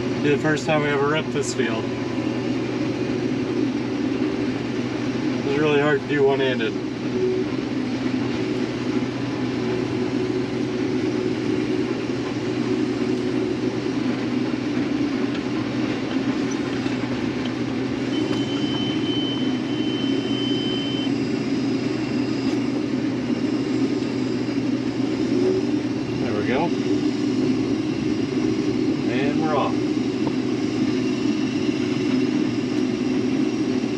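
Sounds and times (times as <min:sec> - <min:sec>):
combine harvester engine drone: 0:00.0 - 0:33.9
faint high whine: 0:18.0 - 0:22.7.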